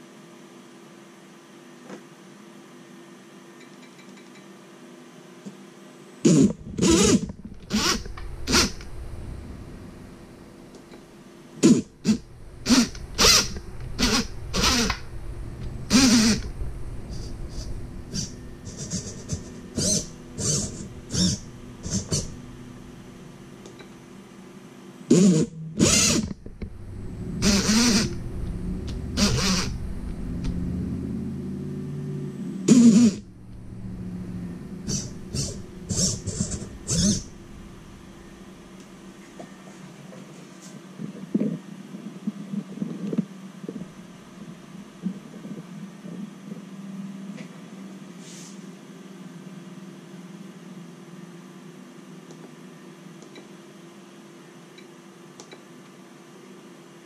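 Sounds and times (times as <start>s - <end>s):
electric motor bursts: 6.3s - 9.6s, 11.6s - 23.0s, 25.1s - 38.7s.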